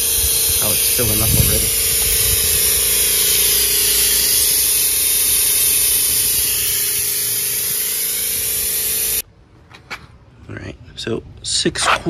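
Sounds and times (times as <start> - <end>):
oil extractor hissing: 0.0 - 9.2
steady tone: 0.0 - 9.2.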